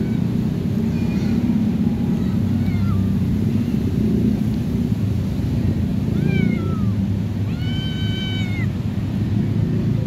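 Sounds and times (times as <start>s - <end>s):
steady low rumble: 0.0s - 10.0s
kitten meows: 2.6s - 3.1s, 6.1s - 8.8s.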